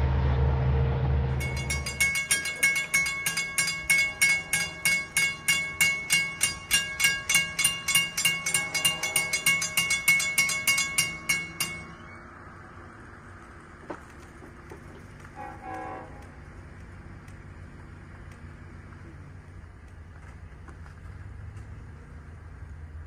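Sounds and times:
railroad crossing bell ringing: 0:01.4 - 0:12.8.

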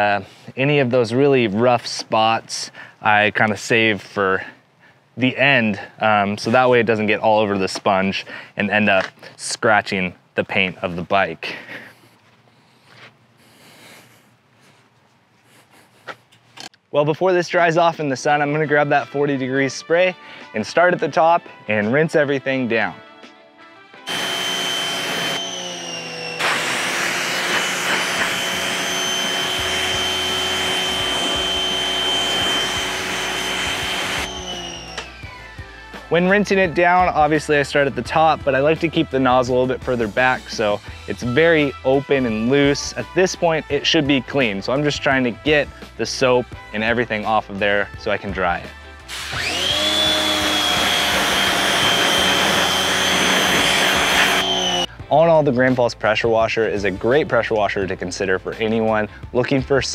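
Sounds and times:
pressure washer motor whine: 0:24.1 - 0:35.5, 0:49.1 - 0:54.9
water jet spraying on metal: 0:26.4 - 0:28.4.

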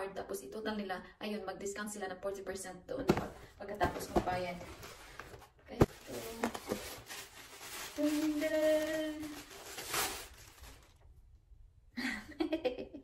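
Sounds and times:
plastic bag rustling: 0:04.0 - 0:11.1.

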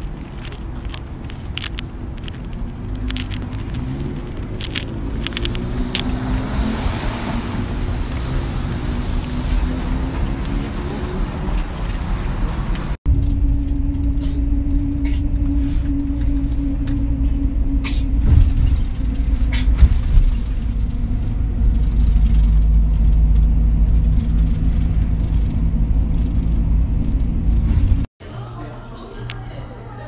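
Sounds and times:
vehicle interior rumble: 0:00.0 - 0:28.1
faint hum: 0:13.1 - 0:28.0.

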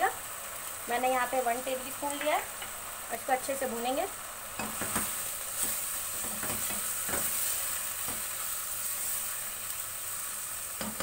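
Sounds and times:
mince sizzling in hot oil: 0:00.0 - 0:11.0
spoon scraping and knocking pan: 0:04.6 - 0:08.4, 0:10.8 - 0:11.0.

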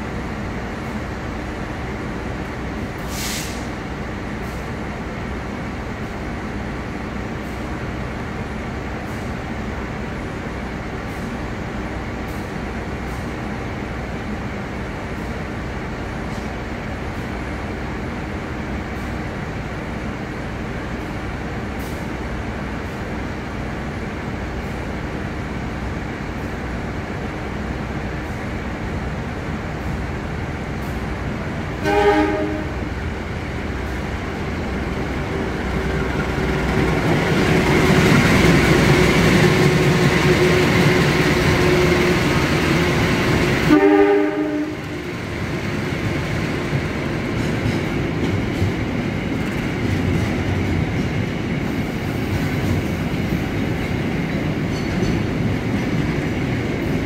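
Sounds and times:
train diesel engine rumbling: 0:00.0 - 0:57.0
short hiss of air: 0:03.0 - 0:03.8.

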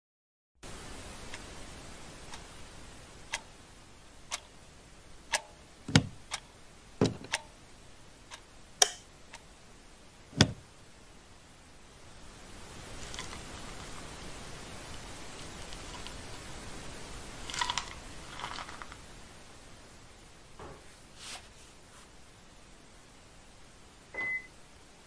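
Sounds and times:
clock ticking: 0:02.3 - 0:02.5, 0:03.3 - 0:03.6, 0:04.3 - 0:04.6, 0:05.3 - 0:07.5, 0:08.3 - 0:09.4
dull knocks: 0:05.9 - 0:06.2, 0:07.0 - 0:07.3, 0:10.4 - 0:10.6.

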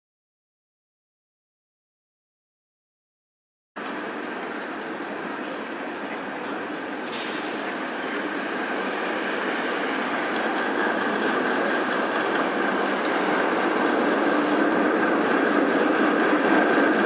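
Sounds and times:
streetcar rumbling on rails: 0:03.8 - 0:17.0
passing street traffic: 0:03.9 - 0:17.0.

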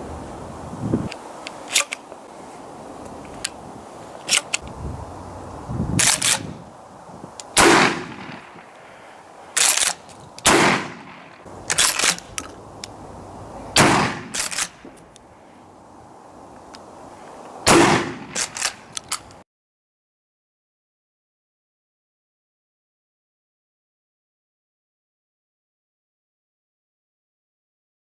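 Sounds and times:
shotgun shots: 0:06.0 - 0:06.5, 0:07.6 - 0:08.6, 0:09.6 - 0:12.2, 0:13.8 - 0:14.8, 0:17.7 - 0:18.8.

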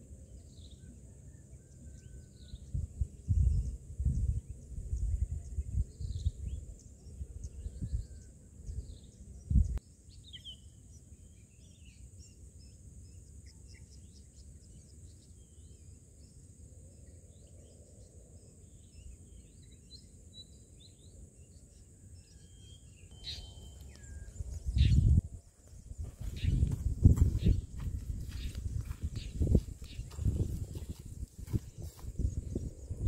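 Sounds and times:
bird chirps: 0:17.0 - 0:33.0
gusty buffeting rumble: 0:24.0 - 0:33.0.

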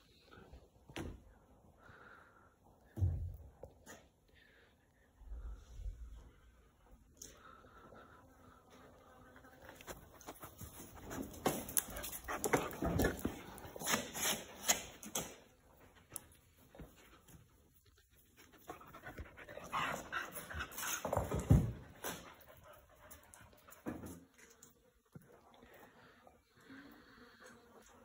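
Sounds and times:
dog panting and snuffling: 0:09.6 - 0:15.2, 0:15.8 - 0:24.2.

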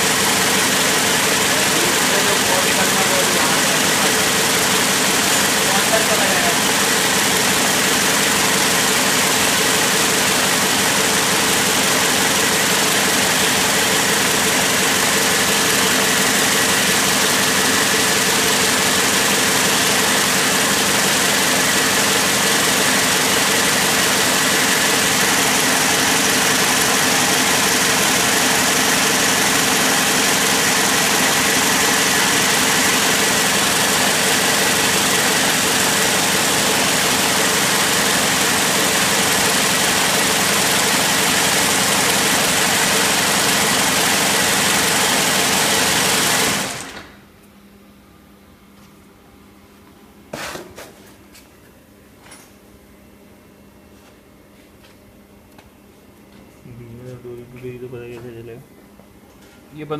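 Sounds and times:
braiding machines mechanical din: 0:00.0 - 0:15.0.

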